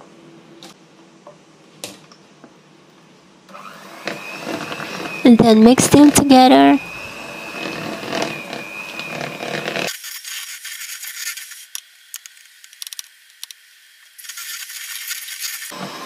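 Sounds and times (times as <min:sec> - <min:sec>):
electric hand mixer whining: 0:03.5 - 0:09.9, 0:15.7 - 0:16.0.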